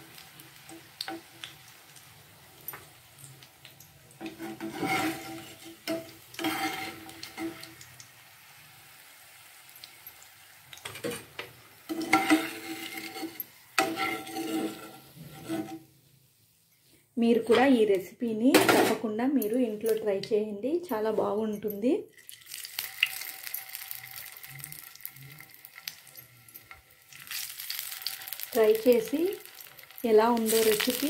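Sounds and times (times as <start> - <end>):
banana slices sizzling in oil: 0.0 - 16.6, 22.2 - 31.0
metal spoon scraping pan: 4.2 - 7.8, 10.9 - 15.9.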